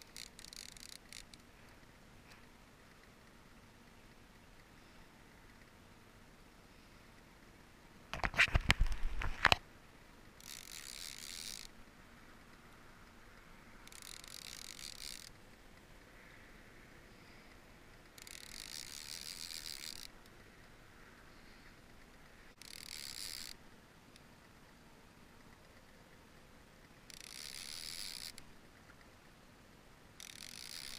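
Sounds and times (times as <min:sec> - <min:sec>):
fishing reel whirring: 0:00.0 - 0:01.4, 0:10.4 - 0:11.7, 0:13.8 - 0:15.4, 0:18.1 - 0:20.2, 0:22.6 - 0:23.6, 0:27.1 - 0:28.4, 0:30.2 - 0:30.9.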